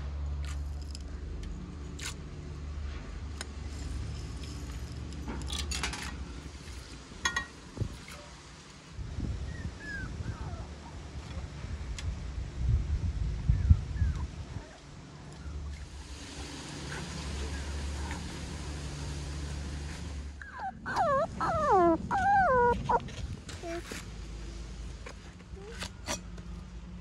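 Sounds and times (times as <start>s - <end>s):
metal spoon clinking on pot: 7.3s - 7.5s.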